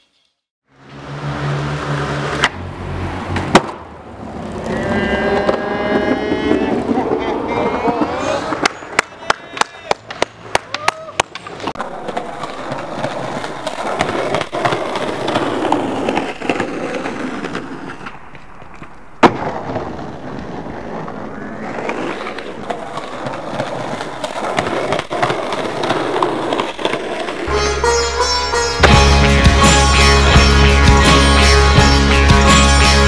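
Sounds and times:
skateboard wheels rolling on pavement: 0.8 - 27.5
skateboard clack: 2.0 - 2.6, 3.3 - 27.5.

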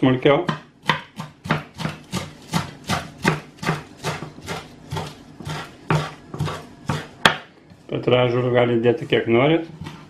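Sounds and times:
knife chopping on wooden board: 0.4 - 7.5, 9.7 - 10.0.

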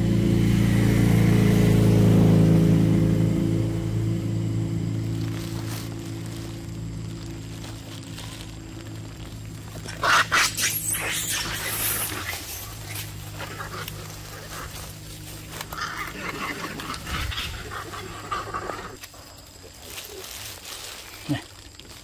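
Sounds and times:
steady low hum: 0.0 - 20.7
sharp animal calls: 9.7 - 19.0.

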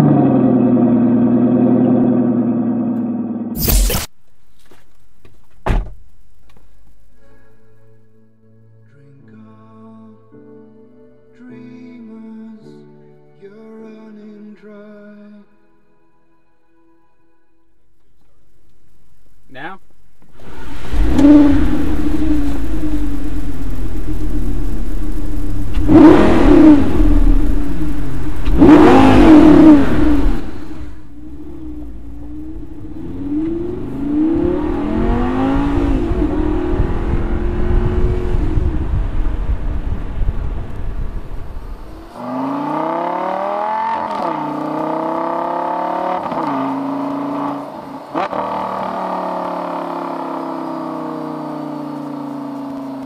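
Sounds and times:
car accelerating through gear changes: 0.0 - 3.8, 20.4 - 53.0
sports car engine revving: 20.4 - 53.0.

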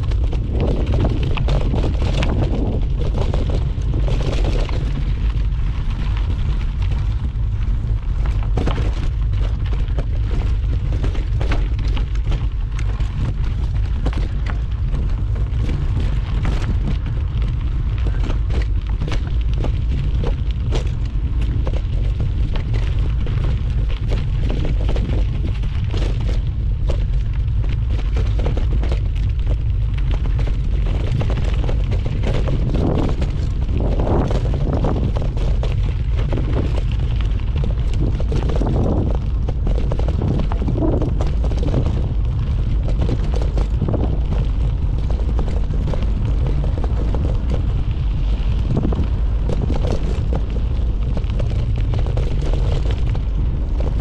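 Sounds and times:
bike rattling and knocking: 0.0 - 54.0
wind buffeting microphone: 0.0 - 54.0.

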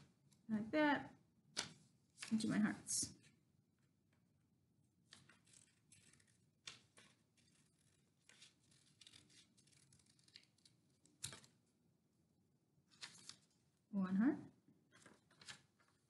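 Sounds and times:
scissors snipping paper: 5.2 - 11.5.

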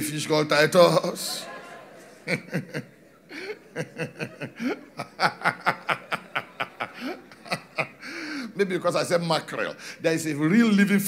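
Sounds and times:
rhythmic laughter: 1.6 - 8.0.

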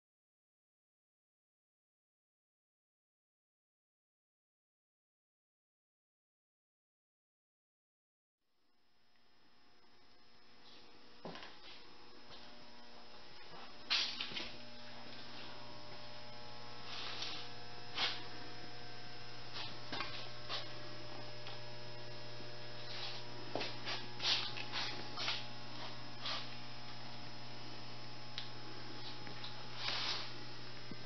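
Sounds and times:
electrical mains hum: 8.6 - 31.0.

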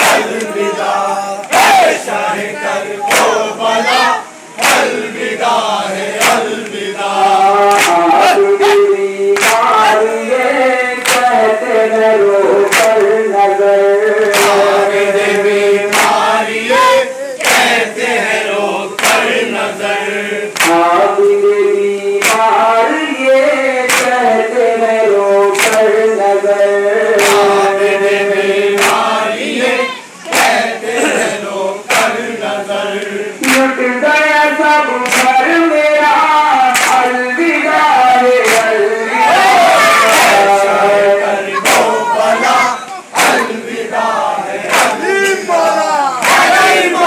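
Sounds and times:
men chanting a lament: 0.0 - 47.0
unison chest-beating strikes: 43.2 - 43.6.

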